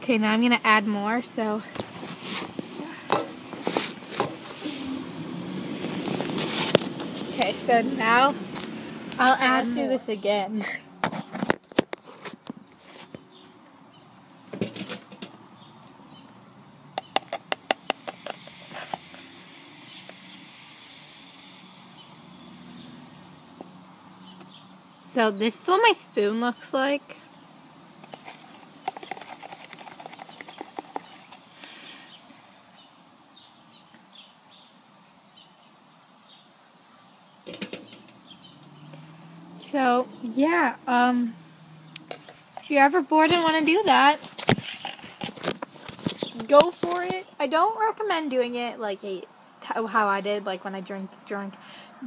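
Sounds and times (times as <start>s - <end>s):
outdoor background noise: 0.0s - 52.0s
baking soda fizzing: 17.5s - 25.9s, 29.0s - 32.7s.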